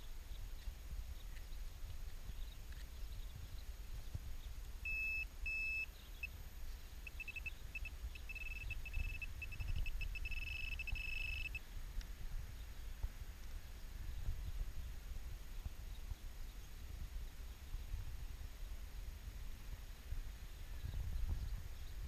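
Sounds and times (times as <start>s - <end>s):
low rumble of wind and handling: 0.0s - 22.0s
metal detector pinpointer beeping: 4.8s - 11.6s.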